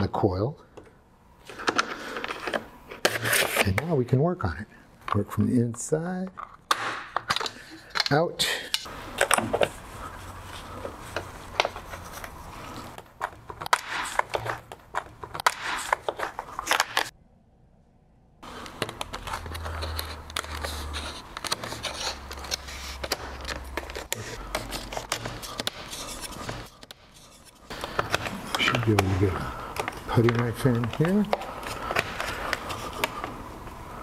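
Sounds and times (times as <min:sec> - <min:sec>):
tools clicking and scraping on wood: 0:10.6 - 0:17.1, 0:18.4 - 0:33.4.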